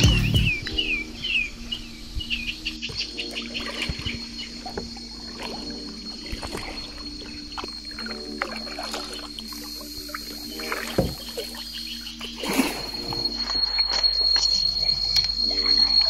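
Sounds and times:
bird chirping: 0.0s - 8.4s, 9.4s - 16.0s
thin high whine: 0.0s - 16.0s
paddle dipping and dripping: 2.7s - 16.0s.

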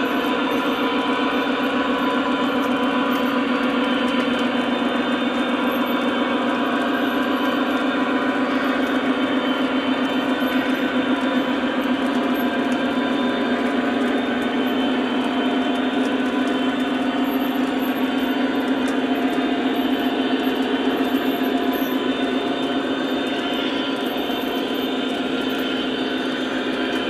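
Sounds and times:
model train cars rolling on track: 0.0s - 27.0s.

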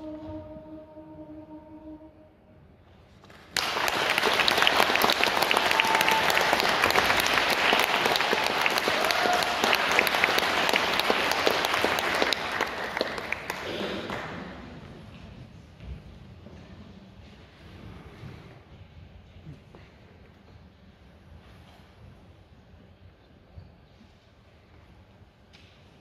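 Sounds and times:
audience applause: 3.3s - 14.6s.

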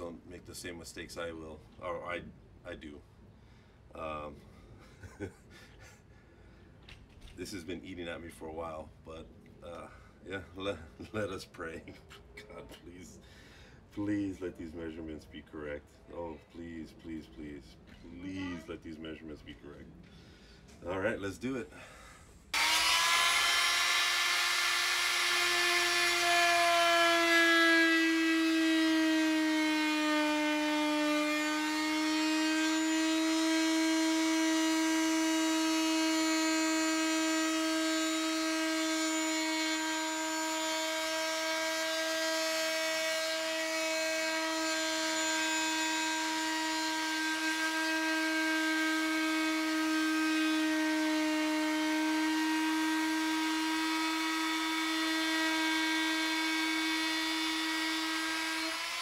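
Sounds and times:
oscillating tool buzzing: 22.5s - 59.0s.

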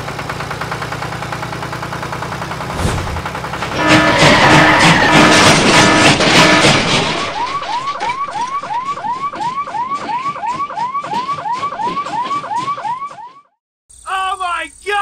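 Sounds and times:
loud noise: 2.7s - 8.4s
electronic siren wailing: 6.6s - 13.5s.

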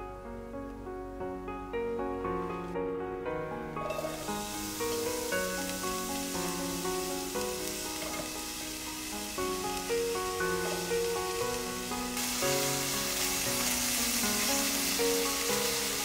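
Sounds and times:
background music: 0.0s - 16.0s
onions sizzling in pan: 3.7s - 16.0s.

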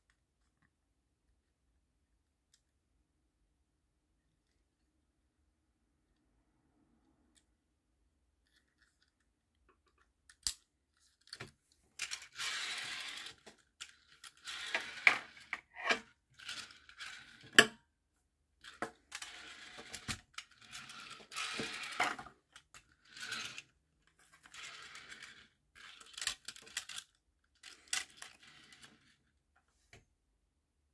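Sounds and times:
toy car rolling on tabletop: 8.4s - 17.7s, 18.6s - 29.4s
toy clicks and knocks: 11.3s - 17.7s, 25.8s - 28.8s.

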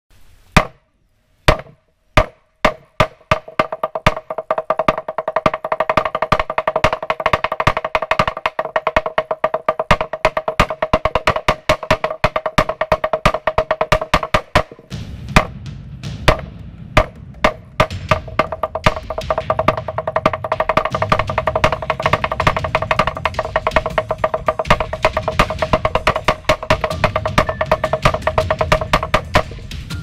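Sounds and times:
slit drum beaten with sticks: 0.6s - 0.8s, 1.5s - 30.0s.

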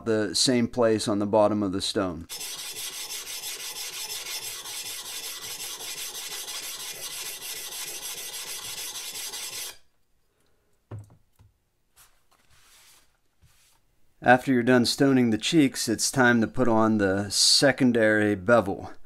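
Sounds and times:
whetstone scraping steel axe head: 2.3s - 9.9s.

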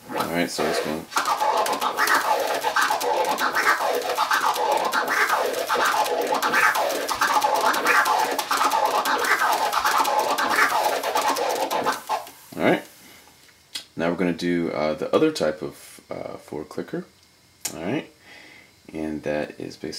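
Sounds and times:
vinyl record scratching: 0.0s - 12.8s.

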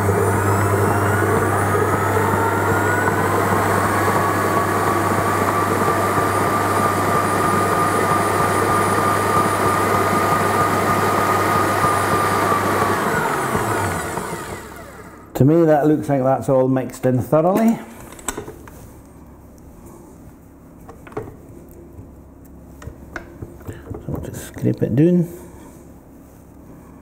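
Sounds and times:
stand mixer motor whine: 0.0s - 15.4s.

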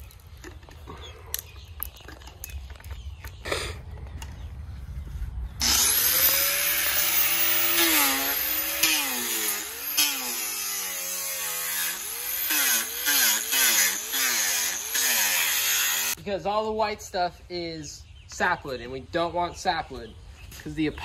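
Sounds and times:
angle grinder sanding wood: 5.6s - 16.2s.

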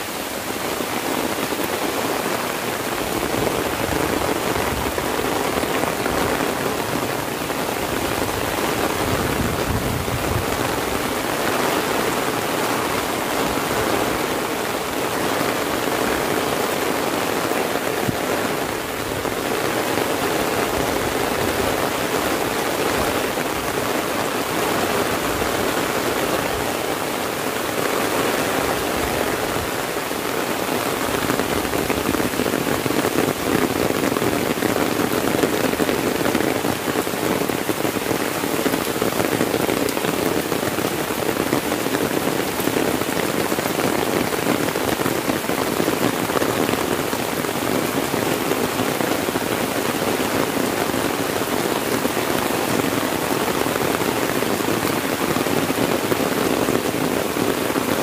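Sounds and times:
heavy rain on an umbrella: 0.0s - 58.0s
rain on foliage: 0.0s - 58.0s.

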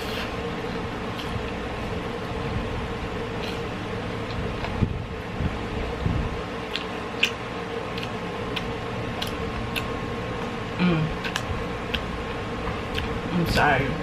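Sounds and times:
person chewing: 0.0s - 2.3s, 3.3s - 4.9s, 6.6s - 10.5s, 11.1s - 13.2s
background hum: 0.0s - 14.0s.

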